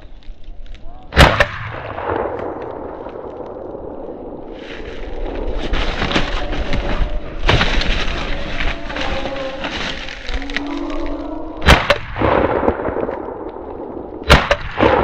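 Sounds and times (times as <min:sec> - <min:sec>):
shotgun shot echoing: 0:01.2 - 0:02.8, 0:11.6 - 0:13.3, 0:14.2 - 0:15.0.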